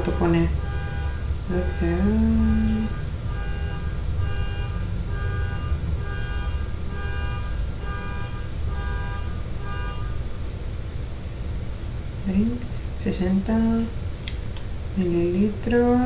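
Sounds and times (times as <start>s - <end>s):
car alarm horn honking: 0.0s - 10.4s.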